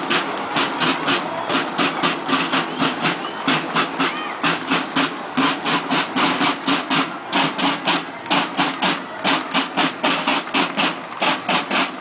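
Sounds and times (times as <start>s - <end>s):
marching snare and bass drums: 0.0s - 12.0s.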